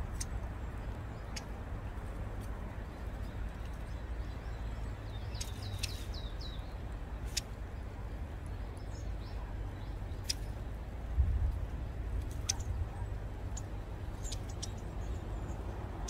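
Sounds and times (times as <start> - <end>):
sharp high bird ticks: 0.0 - 4.0, 5.1 - 7.7, 8.4 - 10.8, 12.2 - 16.0
birds calling: 0.0 - 11.0, 11.8 - 16.0
steady low rumble: 0.0 - 16.0.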